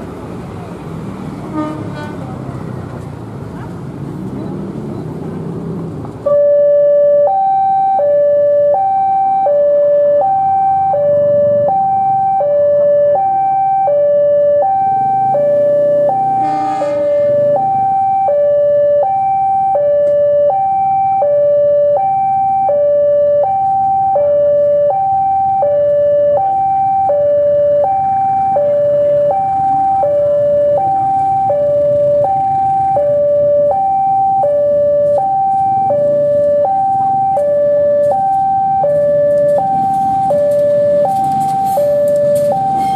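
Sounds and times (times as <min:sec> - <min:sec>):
diesel locomotive rumbling: 0:00.0 - 0:06.2, 0:15.2 - 0:18.0
two-tone electronic alarm: 0:06.3 - 0:42.9.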